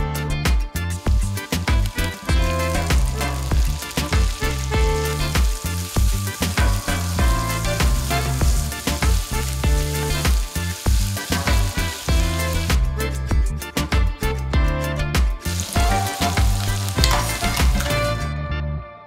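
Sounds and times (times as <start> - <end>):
background music with steady beat: 0.0 - 18.7
tomatoes sizzling in hot oil: 0.9 - 13.3, 15.4 - 18.3
wooden spatula stirring: 15.5 - 18.2.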